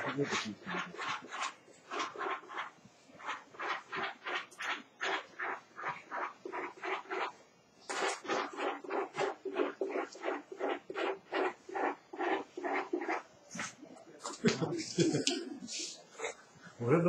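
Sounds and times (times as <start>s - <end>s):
man laughing: 14.3s - 16.4s.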